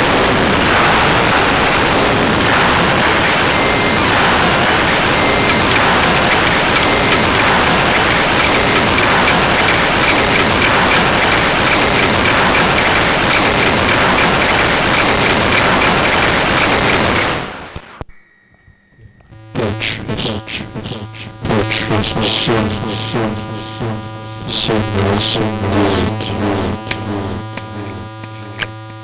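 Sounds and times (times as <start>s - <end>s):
synthesizer noise hiss: 0.0s - 18.0s
pulsing synthesizer tone: 1.3s - 17.2s.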